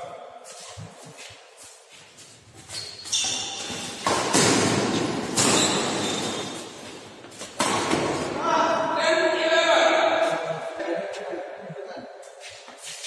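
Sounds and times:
racket striking shuttlecock: 3.4s - 6.8s.

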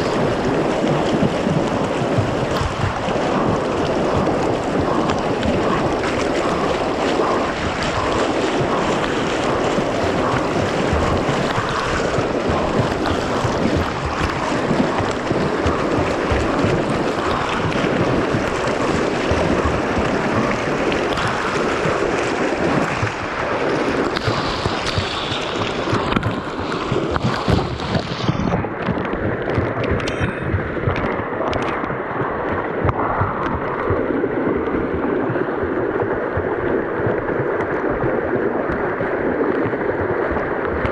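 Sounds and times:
whitewater rushing and splashing: 0.0s - 40.9s.

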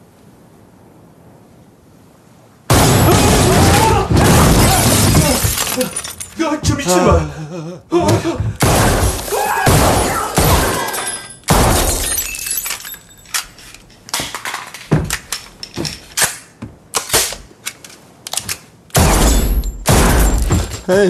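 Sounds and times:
glass shattering: 2.7s - 6.4s, 8.6s - 16.2s, 19.0s - 21.0s.

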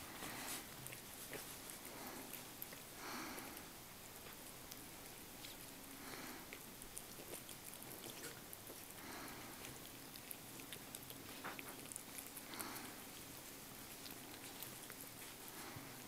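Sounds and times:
cat chewing and licking food: 0.0s - 16.0s.

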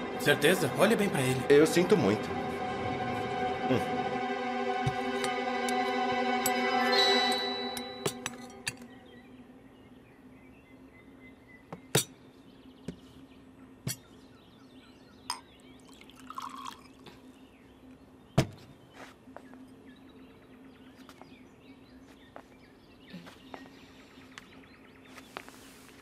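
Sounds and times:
glassware and tableware clinking: 15.3s - 16.9s
liquid pouring into glass: 15.8s - 17.0s.

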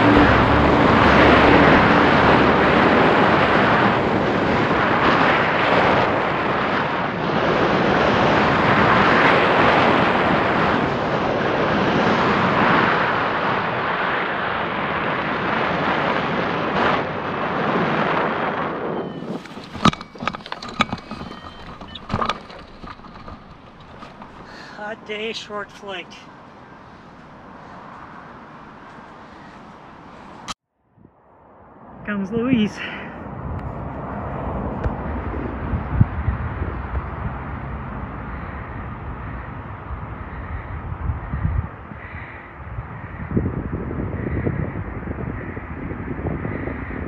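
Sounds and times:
wind buffeting microphone: 0.0s - 47.0s
sharp knocks and clicks: 19.3s - 24.5s.

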